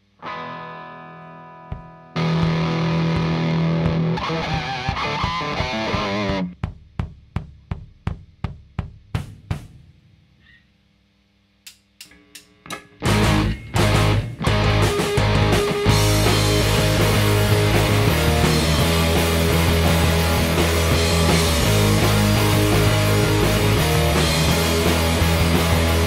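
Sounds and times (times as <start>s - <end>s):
distorted electric guitar chords: 0.0s - 6.7s, 12.1s - 26.0s
rock band playing loudly: 1.5s - 6.6s, 13.0s - 26.0s
drum hits: 1.7s - 10.0s, 12.7s - 26.0s.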